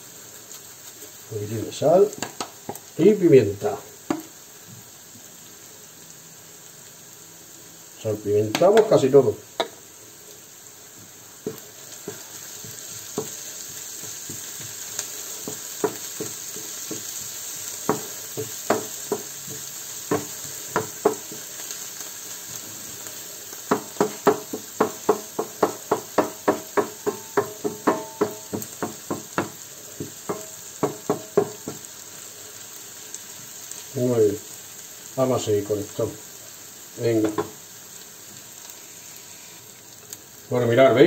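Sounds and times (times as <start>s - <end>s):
vegetables sizzling in a frying pan: 0.0s - 41.0s
wooden spoon knocking on a pan: 2.1s - 2.8s, 4.1s - 4.3s, 8.5s - 9.0s, 9.6s - 9.8s, 11.4s - 21.5s, 23.7s - 31.9s, 37.2s - 37.6s.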